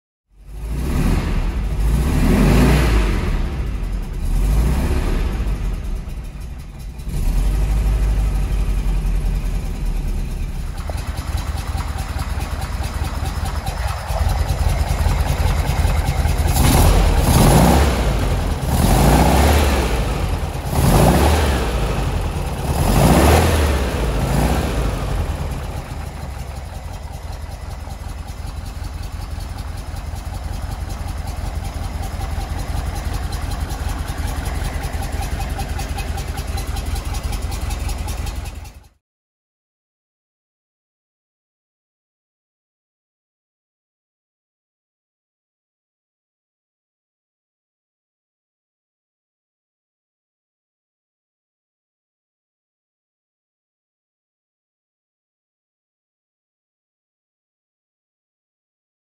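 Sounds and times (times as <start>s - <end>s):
car engine revving and idling: 0.4s - 38.9s.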